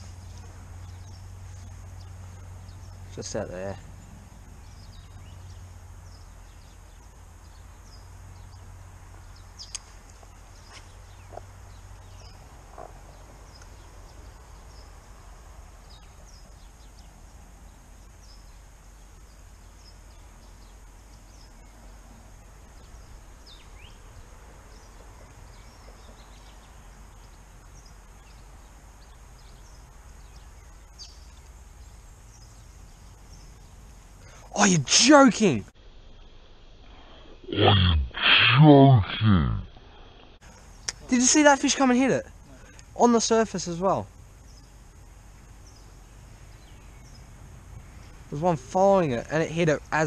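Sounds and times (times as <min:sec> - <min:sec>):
bird chirps: 0:00.0 - 0:15.1, 0:15.8 - 0:17.4, 0:22.6 - 0:35.3, 0:42.6 - 0:50.0
wind rumble: 0:44.1 - 0:48.8.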